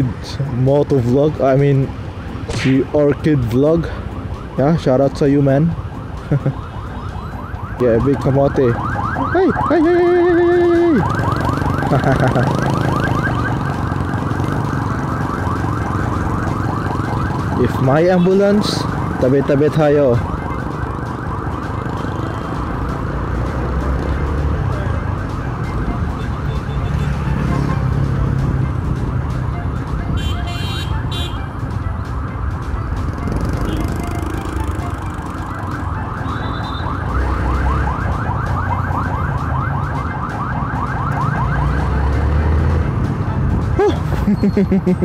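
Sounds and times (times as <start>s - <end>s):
street traffic: 0.0s - 45.0s
ambulance siren yelping: 2.6s - 42.7s
motorcycle engine running: 33.0s - 35.6s.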